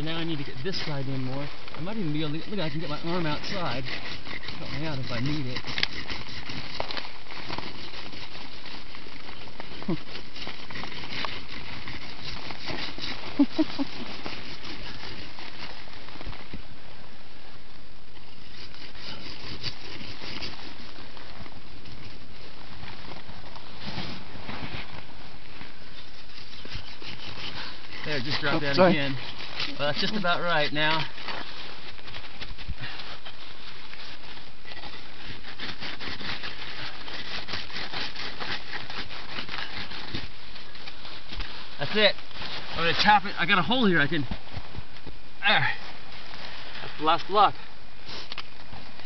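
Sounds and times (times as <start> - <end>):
snow blocks scraping and crunching: 0.0 - 16.8, 18.3 - 49.0.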